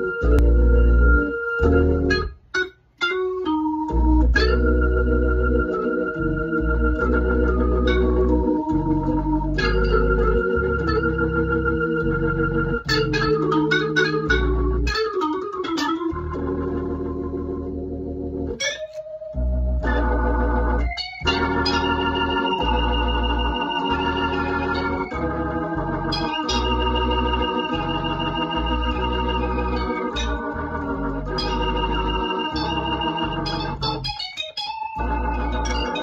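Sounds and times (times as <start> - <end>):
organ chords through rotary speaker: 0.0 - 36.0.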